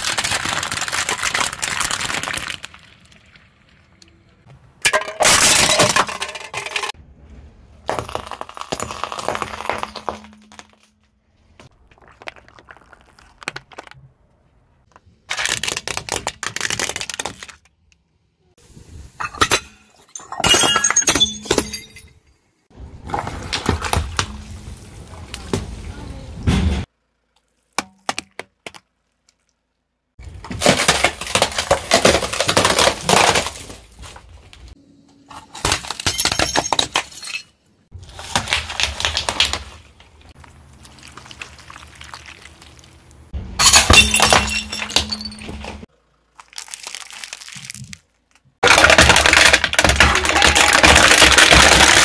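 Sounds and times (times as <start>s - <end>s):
tyre crushing objects: 7.8s - 14.0s, 30.2s - 34.7s, 37.9s - 42.5s, 48.6s - 52.0s
drink cans crumpling: 30.5s - 34.3s, 46.3s - 52.0s.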